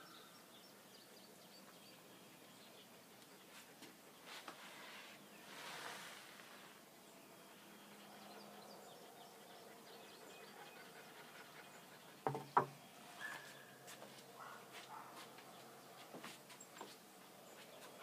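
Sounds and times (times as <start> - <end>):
stick knocking on table: 12.3 - 12.8.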